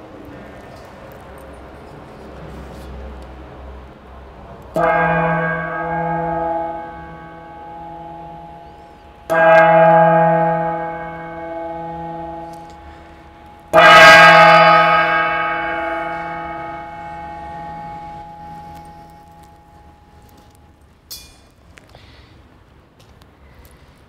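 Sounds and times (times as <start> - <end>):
metal gong ringing: 4.7 - 20.7.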